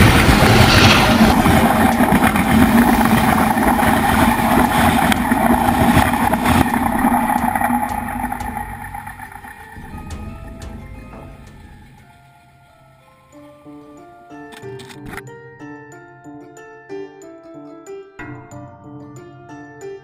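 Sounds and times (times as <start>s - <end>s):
train wheels clattering on rails: 0.0s - 13.0s
steady ringing hum: 0.0s - 14.2s
soft music notes: 6.7s - 20.0s.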